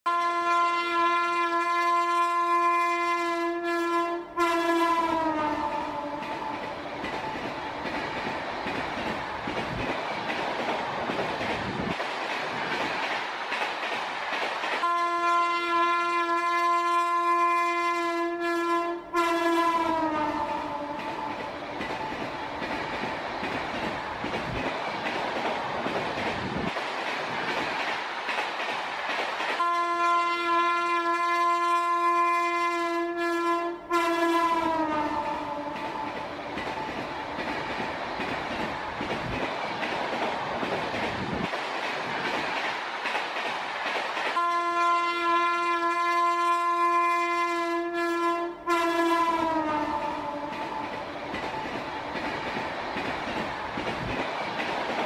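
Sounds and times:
train horn: 0.1 - 6.7, 14.8 - 21.4, 29.6 - 36.2, 44.4 - 50.8
passing train rumble and clatter: 0.1 - 55.0.

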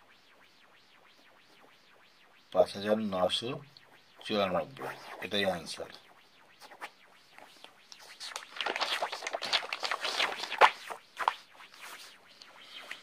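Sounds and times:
paper rustling and scraping: 7.9 - 12.2.

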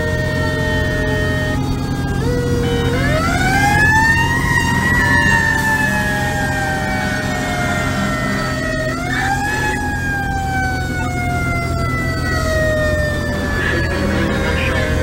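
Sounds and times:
fire engine siren winding: 0.0 - 15.0
truck engine rumble: 0.0 - 15.0.

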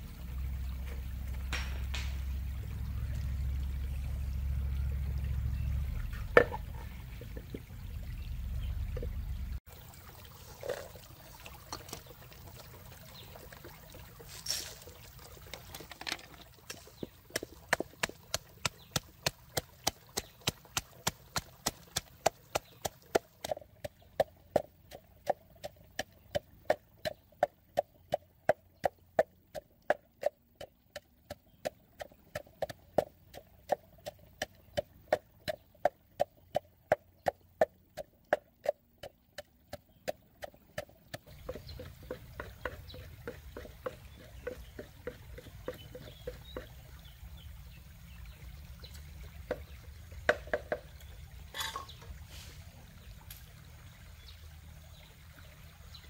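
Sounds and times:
shallow stream rushing: 9.7 - 24.6
wooden pestle pounding in mortar: 34.4 - 46.7, 50.3 - 50.8.

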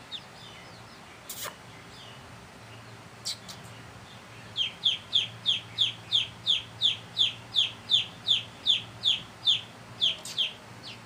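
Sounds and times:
chick peeping in distress: 4.5 - 11.0.

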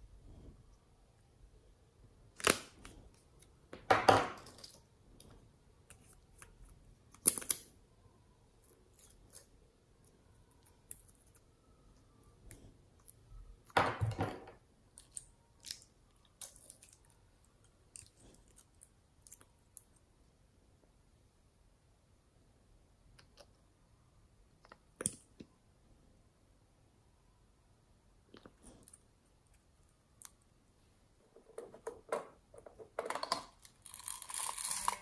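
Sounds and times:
plastic caps clicking and scraping: 31.2 - 35.0.

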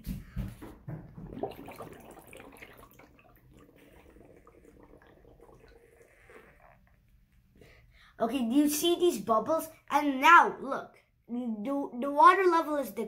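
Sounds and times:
faint bubbling with small pops: 0.3 - 7.6.

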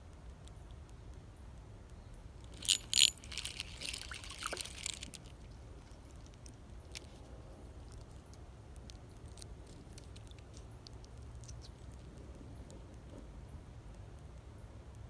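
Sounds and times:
fish splashing in water: 2.6 - 5.5.

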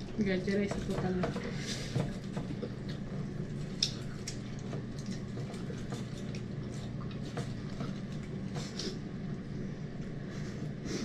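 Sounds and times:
steady low hum: 0.0 - 11.0
wet chewing and lip-smacking: 2.3 - 9.4.

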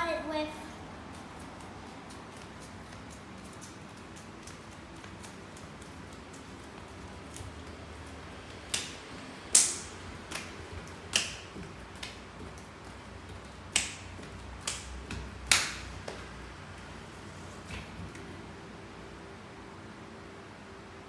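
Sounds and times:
child clapping hands: 8.7 - 12.2, 13.7 - 16.3.

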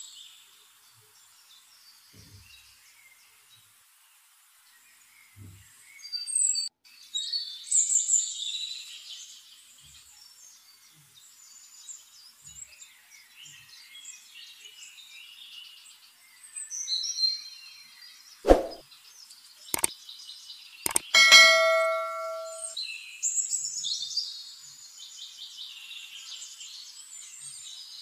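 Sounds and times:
small birds chirping: 19.0 - 22.7
loud metallic clang: 21.2 - 22.8.

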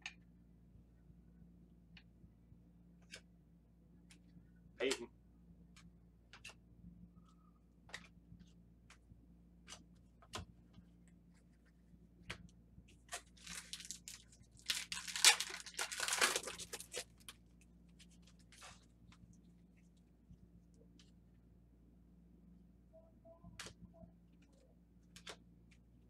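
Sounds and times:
faint clicks of cards handled: 3.0 - 3.3, 5.7 - 6.6, 7.2 - 13.4, 23.5 - 23.8, 24.4 - 25.9
wrapper tearing and crinkling: 13.1 - 17.3.

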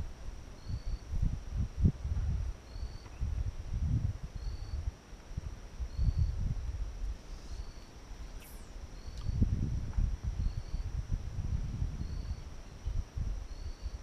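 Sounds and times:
high insect drone: 0.0 - 14.0
wind gusting on microphone: 0.0 - 14.0
short high chirp: 7.5 - 9.4.

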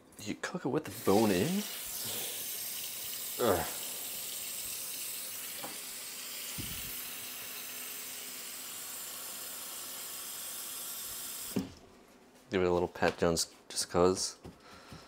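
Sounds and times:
tap running into sink: 5.4 - 5.9.

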